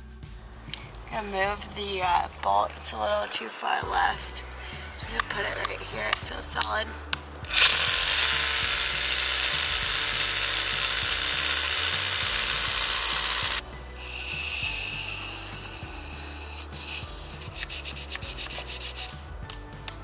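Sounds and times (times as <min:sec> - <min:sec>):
power drill grinding into stone: 0:07.4 - 0:16.6
airy blowing through a tube: 0:13.8 - 0:19.3.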